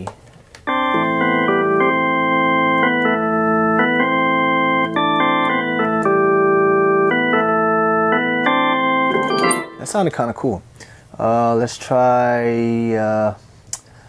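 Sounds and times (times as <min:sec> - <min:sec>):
electronic keyboard organ chords: 0:00.7 - 0:10.3.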